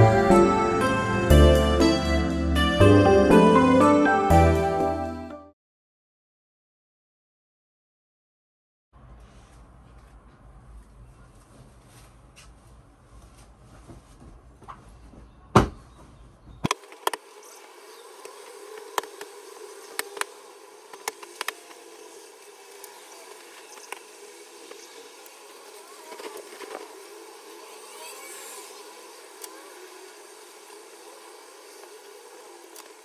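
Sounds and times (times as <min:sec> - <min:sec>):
steady hum: 0:16.7 - 0:33.0.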